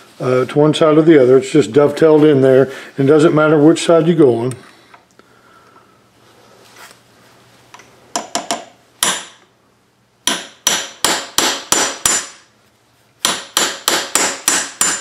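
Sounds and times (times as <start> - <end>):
hammer striking metal punch: 8.2 - 9.4, 10.2 - 12.4, 13.2 - 15.0.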